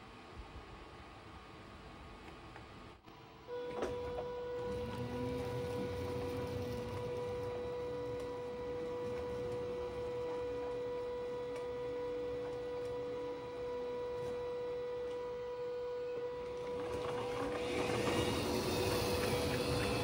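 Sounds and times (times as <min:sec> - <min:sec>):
high-pitched electric whine: 0:03.2 - 0:20.0
model roller coaster wheels rattling: 0:04.7 - 0:07.5, 0:16.6 - 0:20.0.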